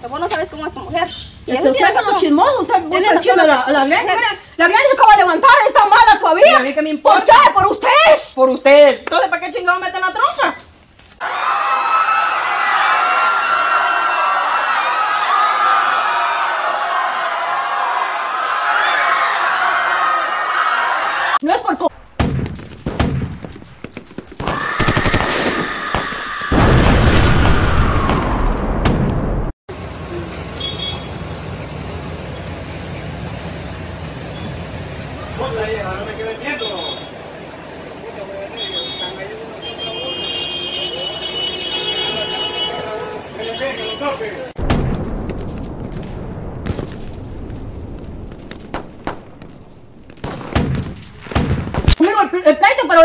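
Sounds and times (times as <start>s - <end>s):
rapid sharp bangs: 22.1s - 29.5s, 44.6s - 52.0s
loud low rumble: 44.6s - 51.2s.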